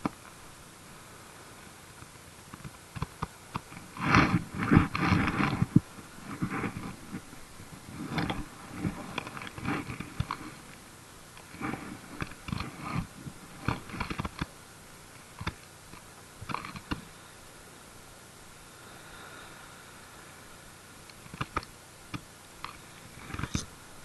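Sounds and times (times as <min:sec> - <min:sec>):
handling rustles and clicks: 0:01.9 - 0:17.1, 0:21.1 - 0:23.7.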